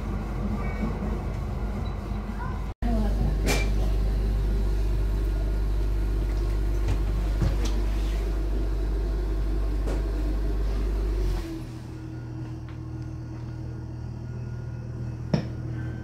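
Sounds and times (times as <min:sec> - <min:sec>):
train car rumbling: 0:00.0 - 0:16.0.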